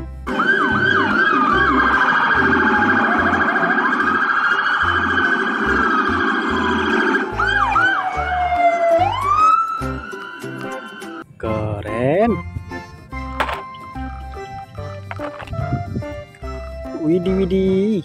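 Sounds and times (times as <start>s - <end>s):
police sirens: 0.3s - 11.2s.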